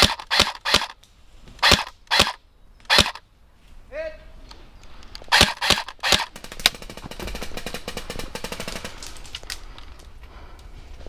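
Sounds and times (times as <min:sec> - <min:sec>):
airsoft rifle full-auto burst: 0:00.0 - 0:01.0, 0:01.6 - 0:03.2, 0:05.3 - 0:09.1
airsoft rifle shots: 0:00.0 - 0:01.0, 0:01.6 - 0:03.2, 0:05.3 - 0:09.0.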